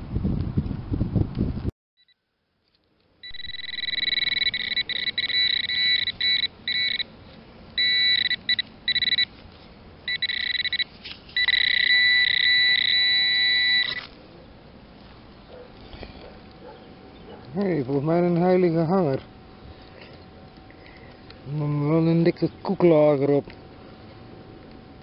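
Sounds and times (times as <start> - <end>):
metal detector probe buzzing: 3.2 - 7.1, 7.8 - 9.4, 10.1 - 14.1.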